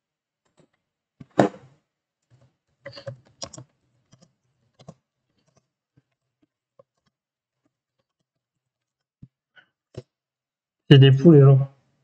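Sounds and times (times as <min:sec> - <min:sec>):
keyboard typing clicks: 0:02.9 - 0:05.6.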